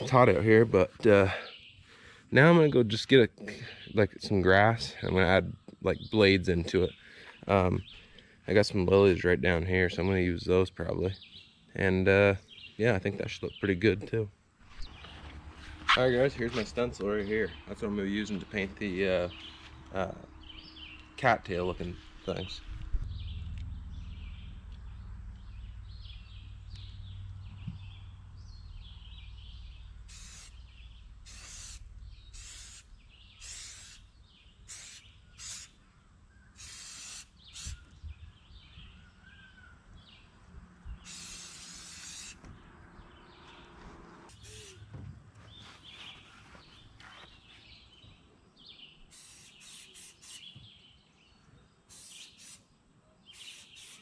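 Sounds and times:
birds chirping: 0.0s - 54.0s
spray paint can hissing: 30.1s - 34.1s, 34.7s - 35.8s, 36.6s - 37.8s, 41.0s - 42.4s, 44.3s - 44.8s, 49.1s - 50.6s, 51.9s - 52.7s, 53.3s - 54.0s.

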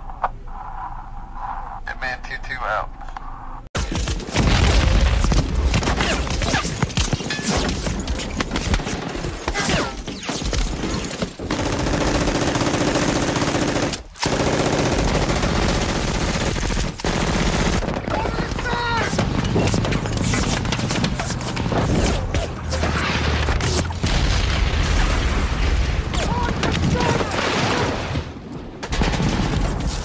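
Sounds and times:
automatic gunfire: 10.6s - 21.2s.

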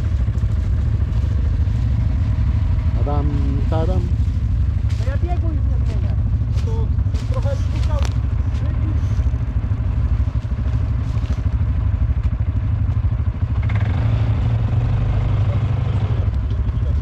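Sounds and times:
quad engine under throttle: 0.0s - 17.0s.

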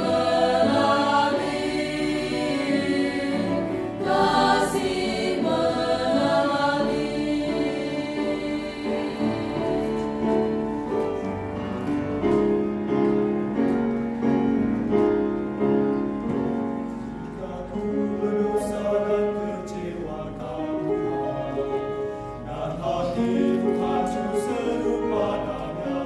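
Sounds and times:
mixed choir singing a hymn: 0.0s - 11.7s, 16.2s - 26.0s.

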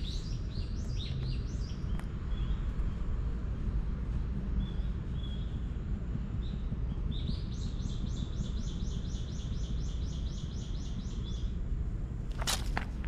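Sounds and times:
low rumble: 0.0s - 9.8s
songbird singing: 0.0s - 13.0s.

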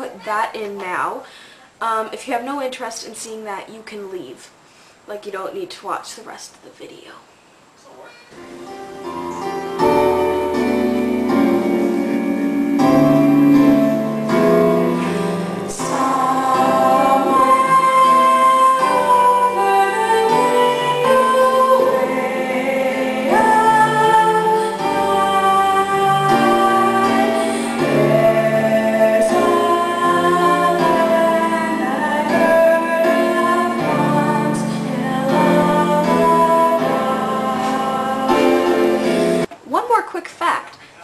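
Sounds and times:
instrumental accompaniment: 8.1s - 39.5s.

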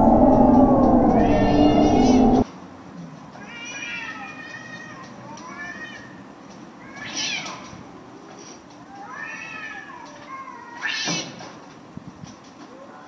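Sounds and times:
cat yowling: 0.0s - 2.4s.

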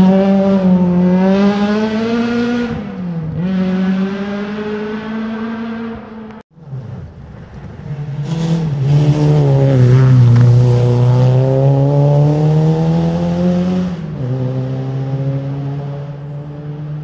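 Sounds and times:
rally car engine accelerating: 0.0s - 17.0s.

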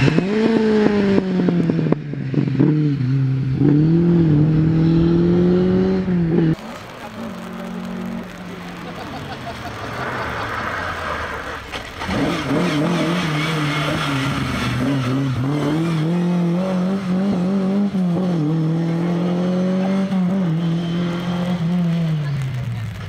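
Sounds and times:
rally car engine revving hard: 0.0s - 8.5s, 9.9s - 22.8s.

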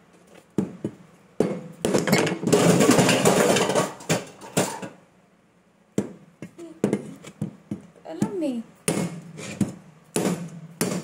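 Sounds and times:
knife hacking at coconut shell: 6.8s - 11.0s.

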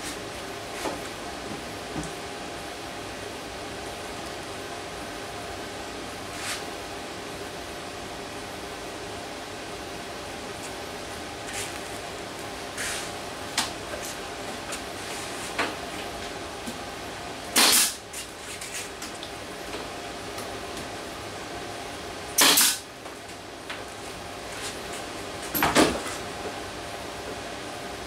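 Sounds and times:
fan hum: 0.0s - 28.0s
compressed air blasts: 17.5s - 18.0s, 22.4s - 22.9s.

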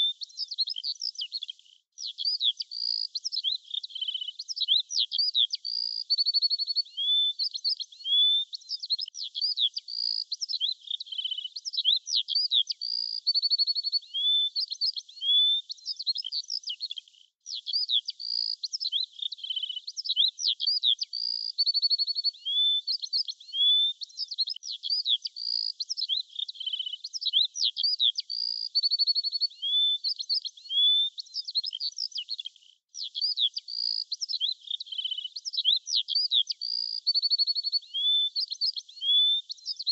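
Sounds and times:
bird singing: 0.0s - 39.9s.

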